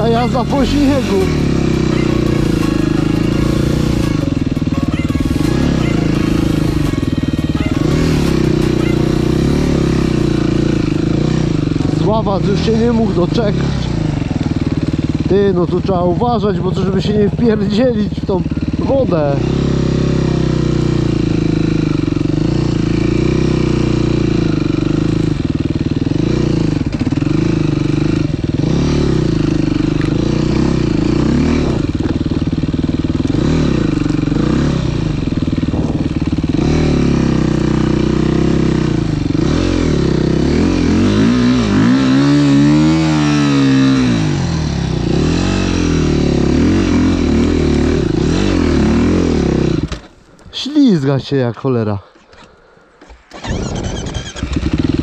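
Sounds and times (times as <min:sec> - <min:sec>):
person speaking: 0:00.0 - 0:04.0, 0:50.5 - 0:52.1
dirt bike engine revving: 0:00.0 - 0:50.2, 0:53.0 - 0:55.0.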